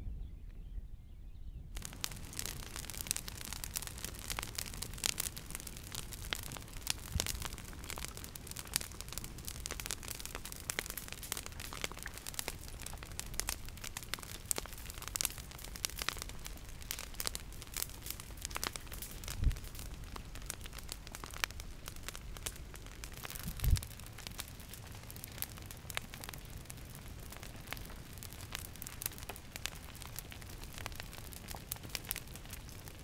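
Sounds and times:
lava crackling and snapping: 0:01.8 - 0:33.0.

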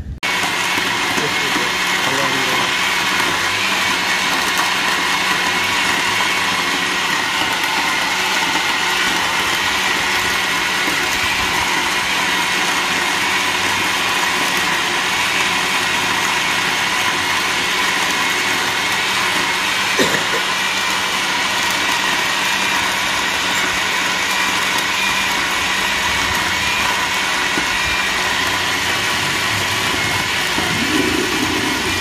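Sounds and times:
blender motor running: 0:00.0 - 0:32.0
high whine: 0:25.4 - 0:32.0.

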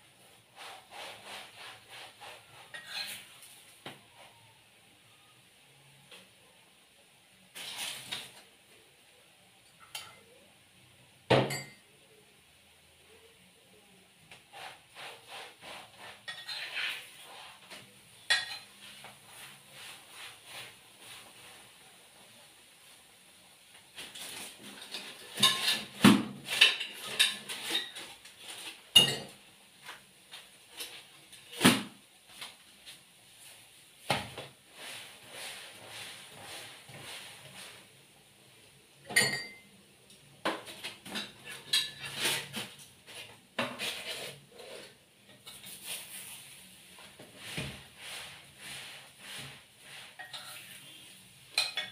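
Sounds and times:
dishes and cutlery clattering: 0:02.7 - 0:03.4, 0:09.6 - 0:10.4, 0:11.3 - 0:11.8, 0:16.1 - 0:17.1, 0:18.2 - 0:18.8, 0:24.1 - 0:29.5, 0:39.1 - 0:39.7, 0:40.5 - 0:42.8, 0:50.1 - 0:50.9, 0:51.5 - 0:51.9.

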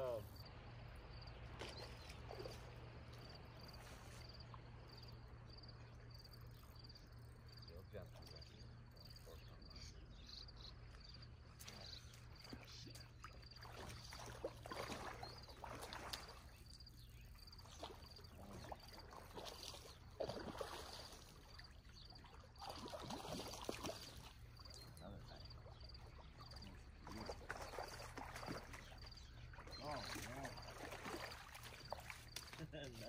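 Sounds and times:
faint high insect chirp: 0:00.0 - 0:33.0
fish splashing in water: 0:11.6 - 0:32.7.

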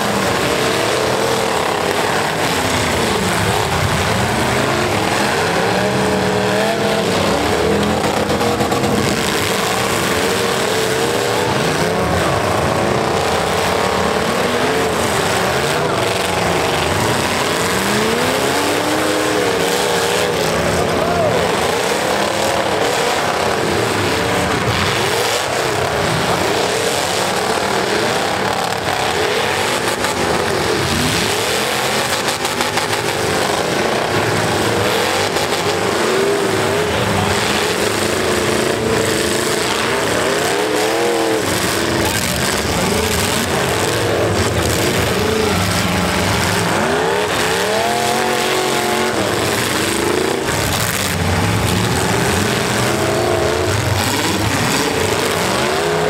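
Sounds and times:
truck engines revving: 0:00.0 - 0:56.0.

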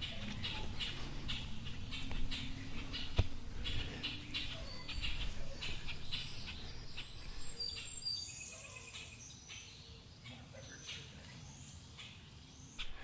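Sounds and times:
rustling and scraping on bark: 0:00.0 - 0:08.0
birds chirping: 0:00.0 - 0:13.0.

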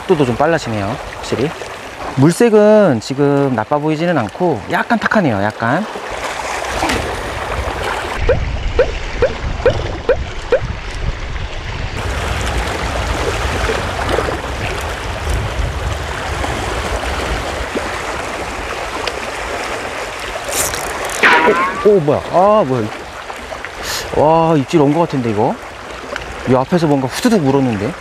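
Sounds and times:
wind buffeting microphone: 0:06.6 - 0:20.6
fishing reel squeaking: 0:20.4 - 0:21.2.

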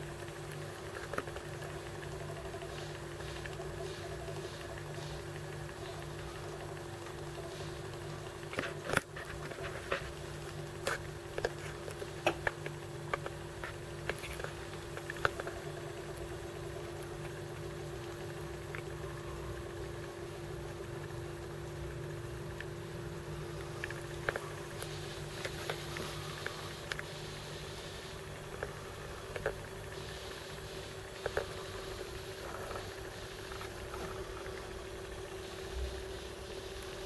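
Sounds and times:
sharp clicks and ticks: 0:00.0 - 0:19.0
water filter pump humming: 0:00.0 - 0:37.0.

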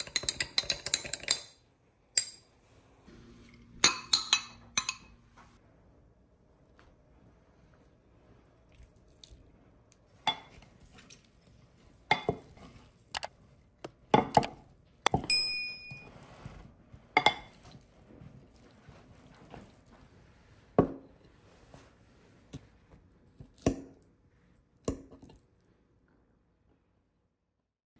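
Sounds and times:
utensil clinking against glass bowl: 0:03.8 - 0:05.1, 0:12.1 - 0:12.5, 0:17.2 - 0:17.6.

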